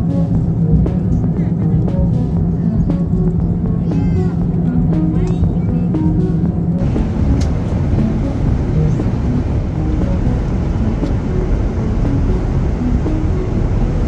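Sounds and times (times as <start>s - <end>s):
airliner cabin engine rush: 0.0s - 14.0s.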